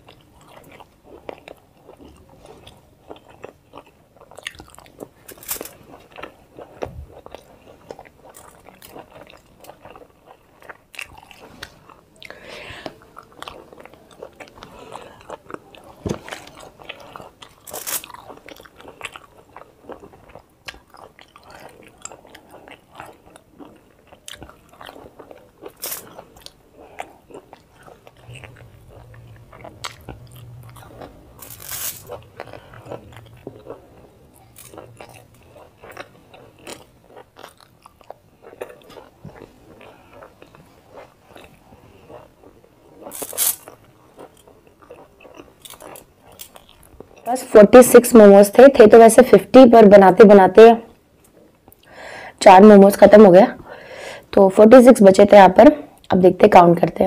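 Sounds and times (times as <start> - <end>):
person chewing food: 0.0 - 47.3, 51.0 - 52.4
low hum: 28.0 - 35.6.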